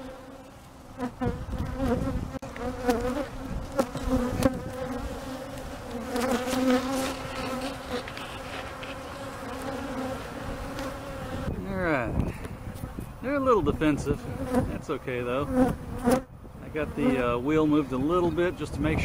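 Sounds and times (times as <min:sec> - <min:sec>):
bees buzzing: 0:00.0 - 0:11.8, 0:12.4 - 0:18.4
bee flying past microphone: 0:01.0 - 0:11.5.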